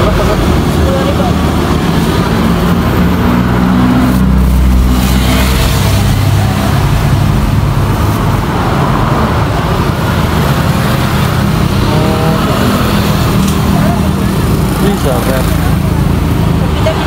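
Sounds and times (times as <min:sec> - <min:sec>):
road noise: 0:00.0 - 0:17.0
vehicle engine rumble: 0:00.0 - 0:17.0.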